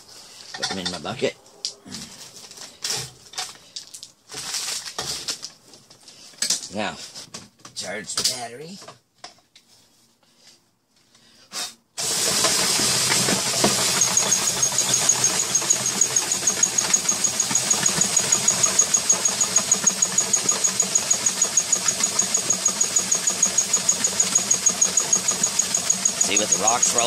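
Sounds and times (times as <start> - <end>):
rocks tumbling in bucket: 2.1 - 6.8
cordless drill running: 12.0 - 27.0.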